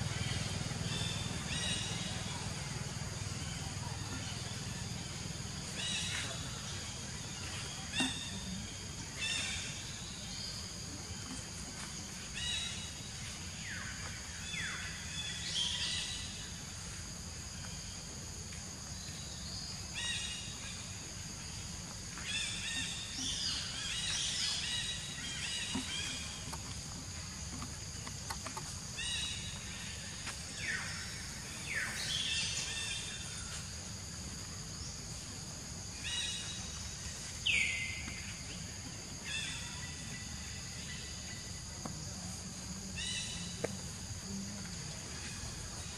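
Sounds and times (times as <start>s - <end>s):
bird calls: 0.0s - 16.4s, 22.2s - 33.7s.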